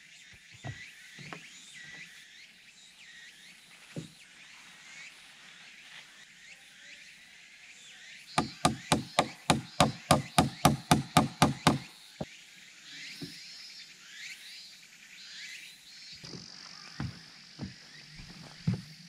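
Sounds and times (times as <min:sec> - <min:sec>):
faint insect chirping: 0:00.0 - 0:19.0
hammer knocking on something solid: 0:08.4 - 0:11.8.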